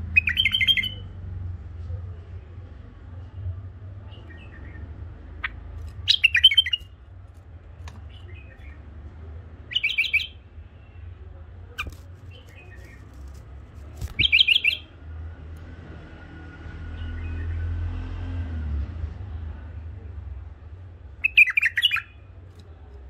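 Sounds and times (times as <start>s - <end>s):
soft bird calls: 4.0s - 7.0s, 9.6s - 11.0s, 11.7s - 15.0s
bird singing quick notes: 14.0s - 14.9s.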